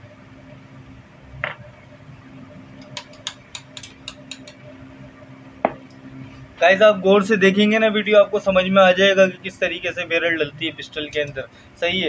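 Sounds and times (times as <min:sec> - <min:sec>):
faint steady hum: 0:00.0 - 0:12.0
sharp metal clicks and taps: 0:02.8 - 0:04.6
metallic clink: 0:03.0 - 0:04.6.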